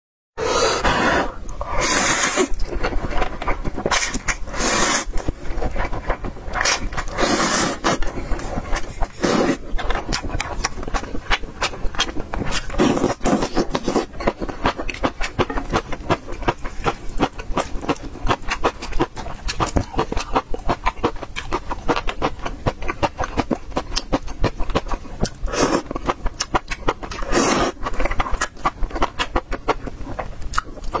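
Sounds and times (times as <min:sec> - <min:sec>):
slurping noodles: 0:00.4 - 0:06.0, 0:06.6 - 0:10.6, 0:12.4 - 0:14.1, 0:25.4 - 0:25.9, 0:27.1 - 0:27.8
wet chewing: 0:00.4 - 0:31.0.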